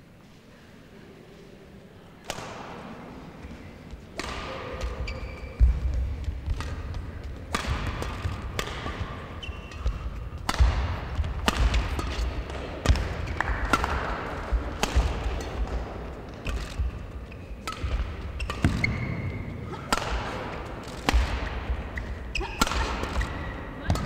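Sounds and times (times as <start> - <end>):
rackets striking shuttlecock: 4.1 - 24.0
shoes squeaking on court floor: 4.8 - 7.4, 8.0 - 10.4, 16.2 - 19.6, 21.7 - 23.9.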